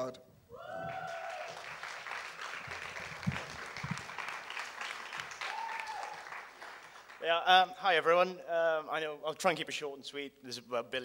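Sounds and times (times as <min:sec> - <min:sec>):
audience applauding: 0:00.6 - 0:07.5.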